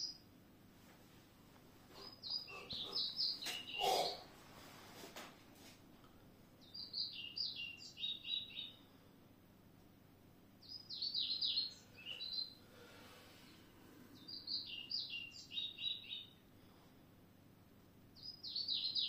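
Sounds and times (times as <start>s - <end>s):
songbird singing: 0.0s - 0.3s, 1.9s - 4.3s, 6.6s - 9.0s, 10.6s - 16.5s, 18.0s - 19.0s.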